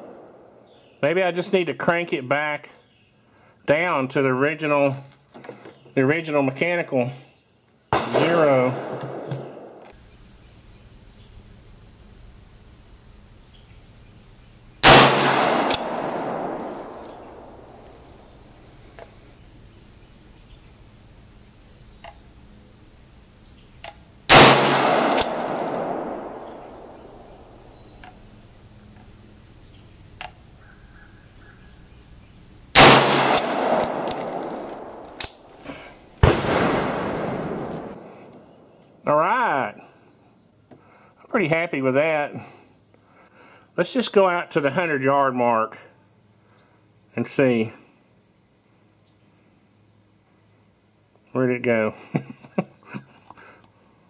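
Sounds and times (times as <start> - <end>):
rifle shots with echo: 0.0 - 0.7, 8.0 - 9.9, 14.8 - 17.9, 24.3 - 27.5, 32.8 - 35.5, 36.2 - 38.7.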